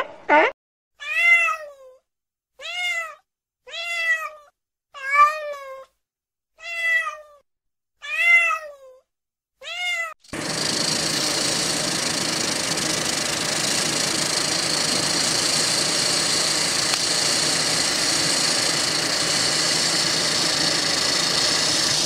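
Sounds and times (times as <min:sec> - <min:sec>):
cat meowing: 0:01.0 - 0:02.0, 0:02.6 - 0:05.9, 0:06.6 - 0:07.4, 0:08.0 - 0:09.0, 0:09.6 - 0:10.1.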